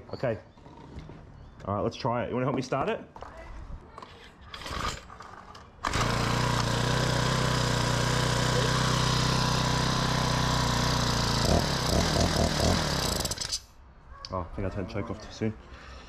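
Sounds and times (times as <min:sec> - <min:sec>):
small engine running and sputtering: 0:05.8 - 0:13.6.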